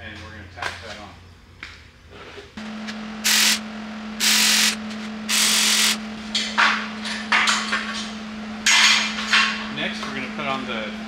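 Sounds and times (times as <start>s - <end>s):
welding arc crackling: 2.6s - 3.6s, 4.2s - 6.0s.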